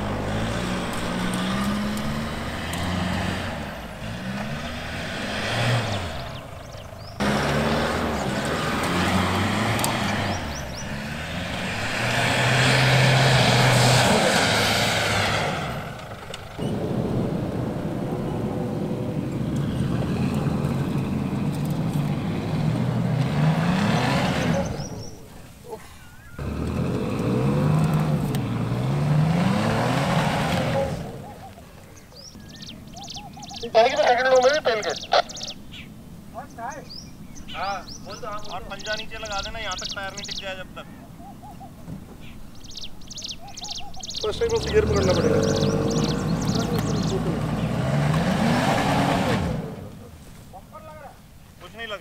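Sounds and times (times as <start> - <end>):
wheels spinning in sand: 0.0 - 31.6
engines revving hard: 0.0 - 35.8, 42.6 - 50.3.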